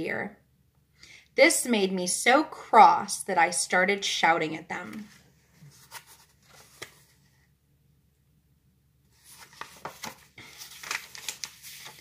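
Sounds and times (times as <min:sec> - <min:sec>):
book pages rustling: 0:04.9 - 0:07.5, 0:09.1 - 0:12.0.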